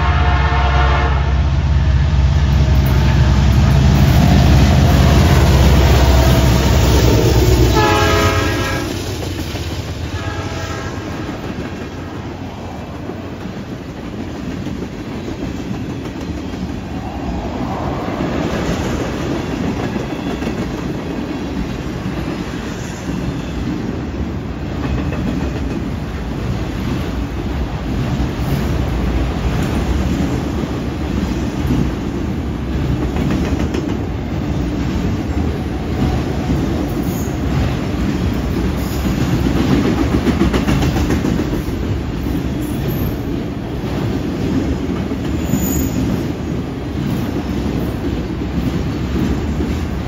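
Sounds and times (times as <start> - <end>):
train horn blasts: 0.0 - 9.0, 10.1 - 11.4
diesel locomotive rumble: 0.0 - 22.2
train wheels clattering on rail: 2.5 - 50.0.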